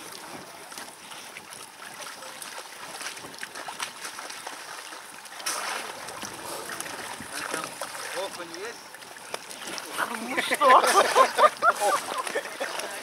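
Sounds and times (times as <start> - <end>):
icy water sloshing and splashing: 0.0 - 13.0
loud water splash: 1.8 - 8.9.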